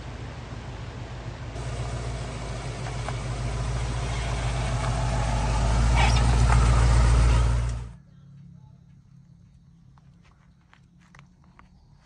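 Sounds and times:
vehicle engine droning past: 0.0 - 8.0.

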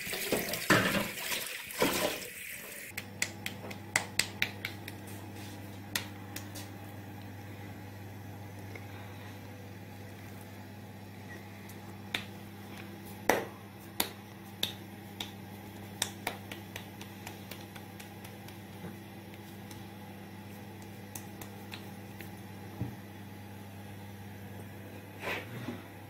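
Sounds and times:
hands slapping: 2.9 - 5.2, 5.9 - 6.7, 12.1 - 12.3, 13.2 - 19.9, 20.8 - 22.4.

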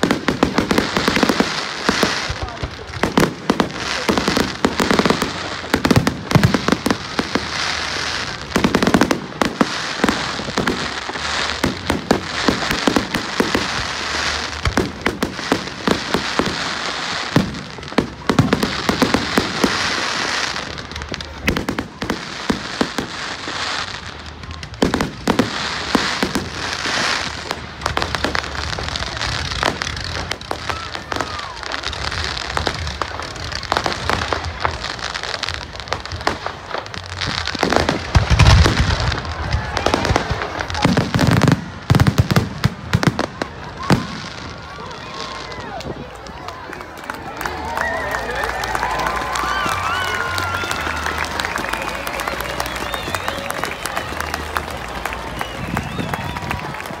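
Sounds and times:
fireworks bangs and crackling: 0.0 - 57.0
steady crackling hiss: 0.0 - 57.0.

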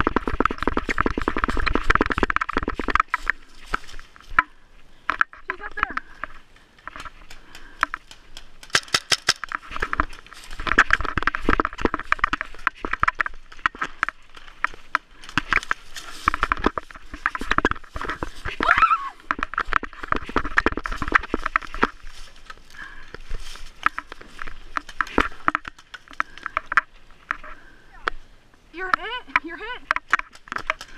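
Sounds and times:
footsteps crunching dry leaves: 0.0 - 4.4, 8.1 - 26.3.

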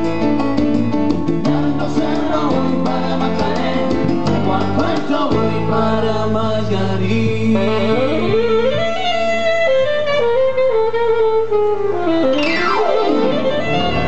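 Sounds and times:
electronic keyboard melody: 0.0 - 6.4, 7.4 - 14.0
bass line: 0.0 - 14.0
latin band music: 0.0 - 14.0.

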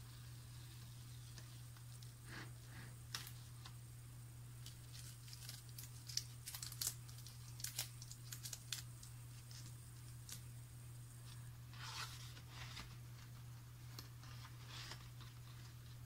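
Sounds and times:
masking tape peeling off paper: 4.6 - 10.5
tape crinkling in fingers: 4.6 - 11.4.

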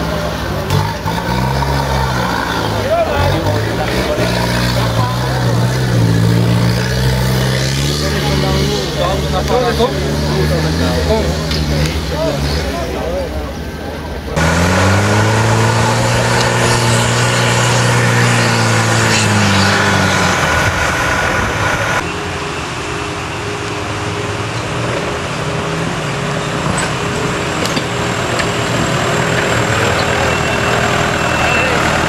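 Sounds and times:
engine revving hard under load: 0.0 - 22.0.

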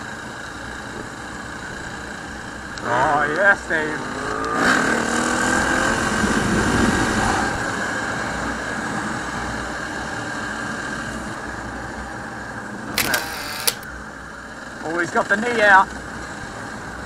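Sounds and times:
dirt bike engine running: 0.0 - 17.0
wind rush: 3.7 - 8.8.

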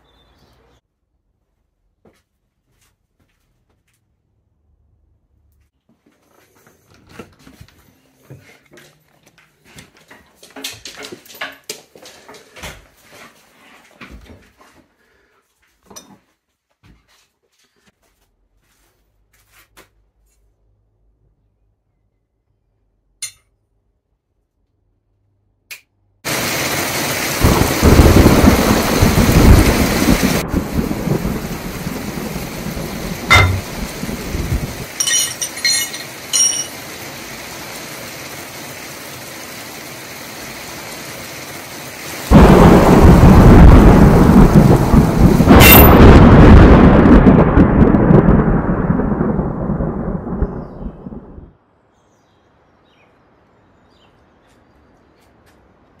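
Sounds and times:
rain hiss: 26.3 - 47.5
rolling thunder: 27.4 - 34.9, 42.3 - 51.6
thunder crack: 27.4 - 34.9, 42.3 - 51.5.

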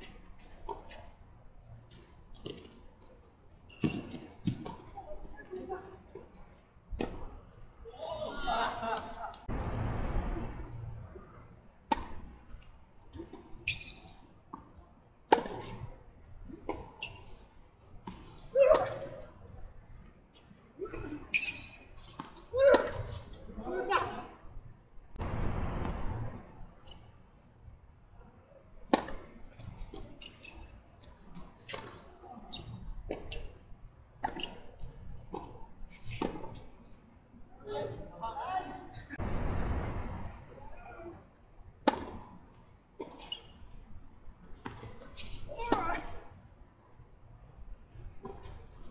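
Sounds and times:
shoe squeaks on hard court: 1.9 - 2.3, 3.7 - 4.2, 13.6 - 14.2, 16.9 - 17.4, 18.1 - 18.6, 21.3 - 22.3, 44.7 - 45.5
tennis balls struck by rackets: 11.9 - 12.4, 14.6 - 15.9, 41.8 - 42.4.

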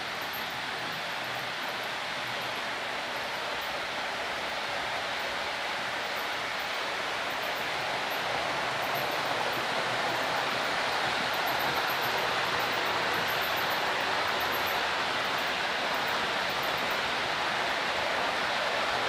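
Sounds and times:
model train wheels on rails: 0.0 - 19.0.

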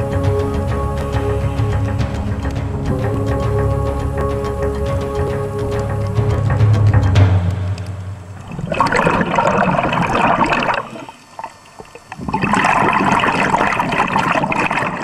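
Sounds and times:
bubbles underwater: 8.2 - 15.0.

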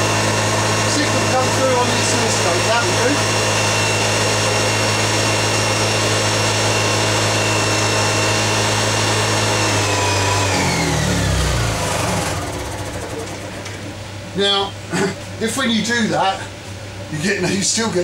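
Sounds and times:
generator engine running: 0.0 - 16.4.

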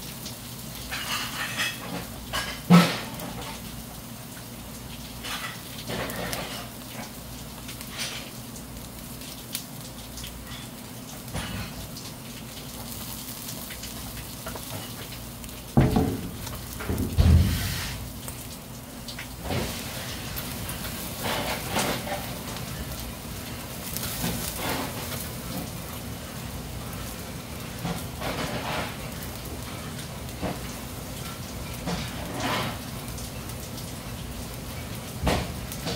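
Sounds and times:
eels sizzling on grill: 0.0 - 35.9
fat popping on coals: 11.6 - 22.8.

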